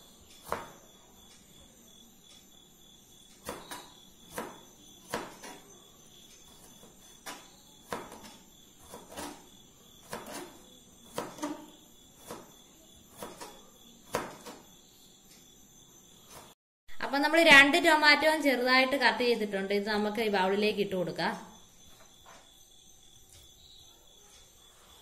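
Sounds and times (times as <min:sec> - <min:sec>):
knife striking plastic cutting board: 0:03.4 - 0:05.6, 0:07.2 - 0:12.5, 0:13.1 - 0:14.6.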